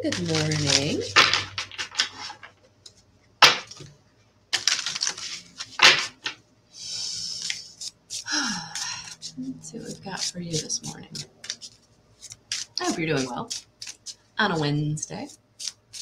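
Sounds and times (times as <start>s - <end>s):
cards being shuffled: 0.0s - 2.6s, 3.4s - 3.9s, 4.6s - 6.4s, 7.3s - 16.0s.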